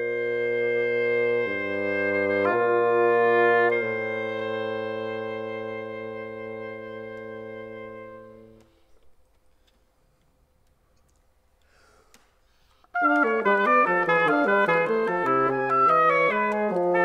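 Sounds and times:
oboe and bassoon fast run: 0.0s - 8.6s, 13.0s - 17.0s
click: 15.2s - 17.0s.

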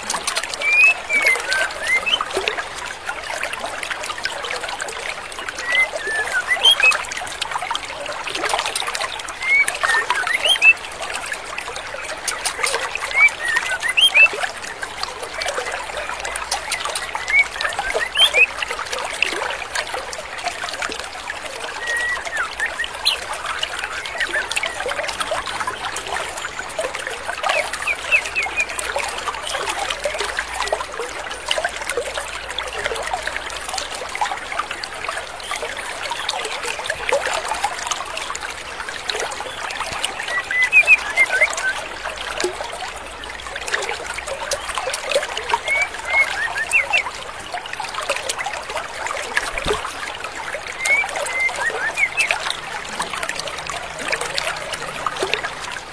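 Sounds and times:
stream water over rocks: 0.0s - 55.9s
bird chirping calls: 0.6s - 2.3s, 5.6s - 7.0s, 9.4s - 10.8s, 13.1s - 14.3s, 16.5s - 18.6s, 21.8s - 26.2s, 27.5s - 28.8s, 40.0s - 41.8s, 45.6s - 47.1s, 50.8s - 53.1s.

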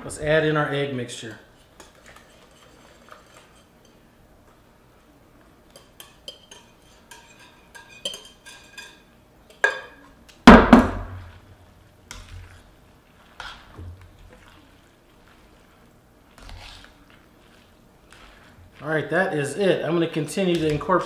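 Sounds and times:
spoon scraping glass bowl: 1.5s - 4.0s, 5.7s - 9.1s
tongs clinking in skillet: 5.7s - 10.0s.

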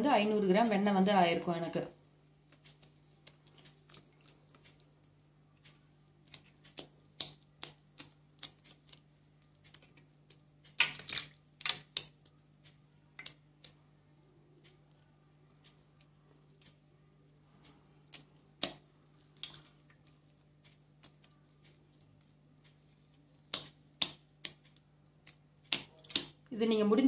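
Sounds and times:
faint low hum: 0.0s - 27.0s
hands squelching soft butter: 1.4s - 26.5s
drips falling into water: 18.1s - 20.2s.

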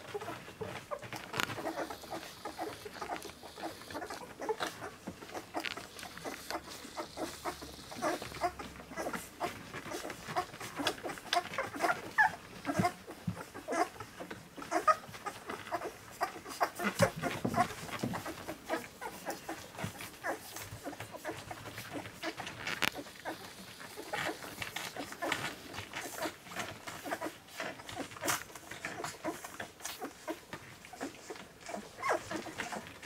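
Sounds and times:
puppies squeaking and grunting: 0.0s - 33.0s
puppies suckling: 0.0s - 33.0s.

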